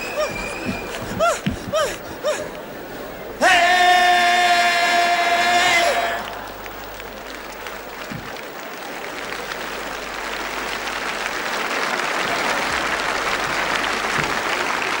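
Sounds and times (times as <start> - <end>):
audience applauding: 4.5 - 15.0.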